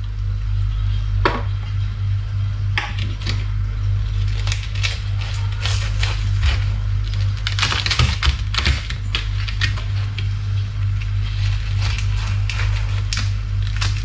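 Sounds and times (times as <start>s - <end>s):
low steady hum: 0.0s - 14.0s
knife crunching through crispy pork: 4.2s - 14.0s.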